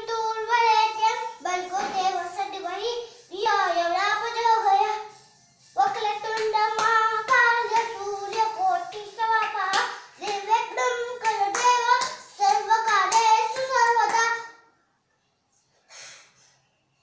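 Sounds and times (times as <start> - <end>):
boy singing: 0.0 - 5.1, 5.8 - 14.6
hands clapping: 6.3 - 14.3.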